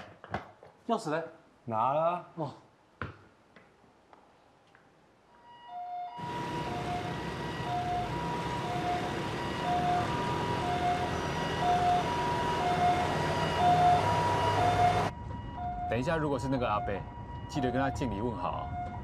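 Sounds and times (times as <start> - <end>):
two-tone ambulance siren: 5.3 - 19.0
traffic and engine noise: 6.2 - 15.9.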